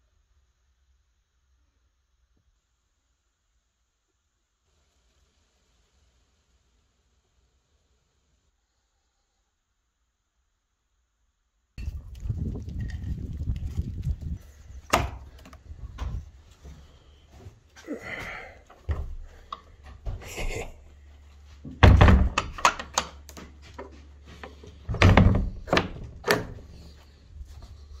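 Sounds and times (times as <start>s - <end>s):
wooden door knocking and rattling: 21.7s - 23.0s, 24.9s - 26.6s.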